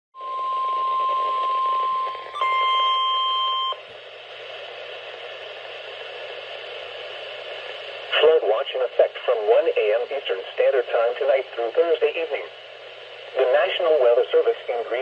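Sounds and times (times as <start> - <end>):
warning alarm tone: 0.2 - 3.8
radio hiss: 3.8 - 15.0.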